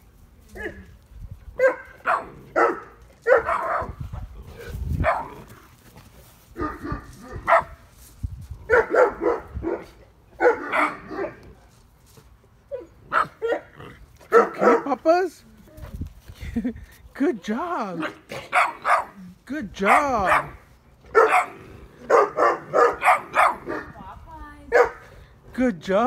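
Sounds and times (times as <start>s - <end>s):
puppy barking: 1.6s - 4.0s, 5.0s - 5.3s, 6.6s - 7.8s, 8.7s - 11.4s, 12.8s - 13.7s, 14.3s - 14.9s, 18.0s - 19.2s, 19.9s - 23.9s, 24.7s - 25.0s.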